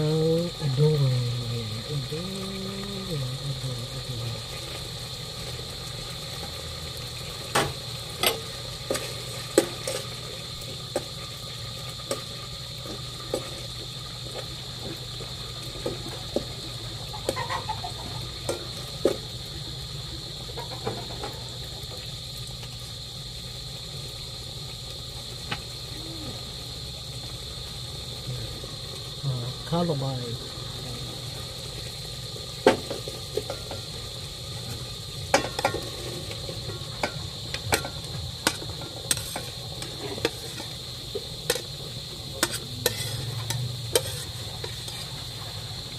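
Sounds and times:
steady background hum: 0:00.0 - 0:45.9
utensil tapping and scraping pot: 0:42.4 - 0:45.2.

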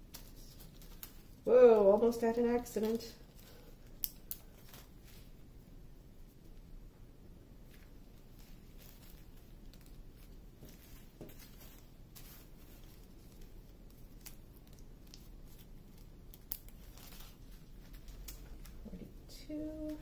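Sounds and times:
plastic bags rustling and crinkling: 0:00.0 - 0:05.5, 0:07.6 - 0:20.0.

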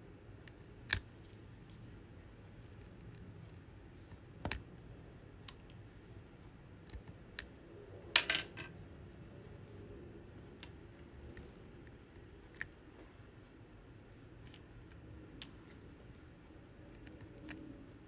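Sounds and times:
faint steady hum: 0:00.0 - 0:18.0
small plastic clicks: 0:16.9 - 0:17.6.

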